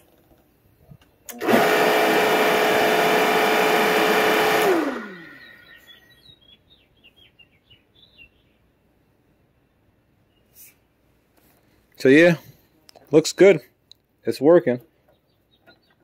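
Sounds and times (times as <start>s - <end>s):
machine motor hum: 1.3s - 5.6s
faint bird chirps: 5.2s - 8.8s, 9.5s - 10.9s, 15.0s - 16.0s.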